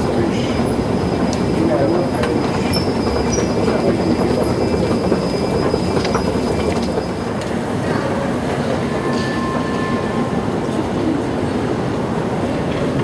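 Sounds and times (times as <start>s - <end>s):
underground train rumble and rattle: 0.0s - 13.0s.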